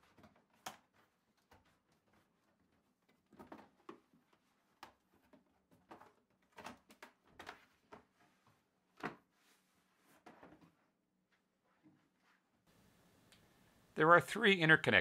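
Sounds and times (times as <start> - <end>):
folding panels clicking and rustling: 0.0 - 8.3.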